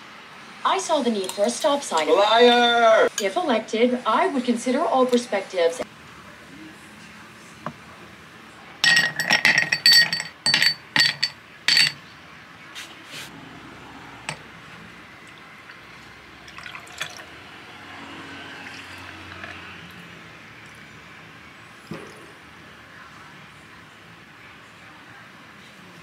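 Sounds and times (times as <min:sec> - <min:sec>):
milk pouring over iced coffee: 0:15.3 - 0:17.4, 0:18.6 - 0:20.9.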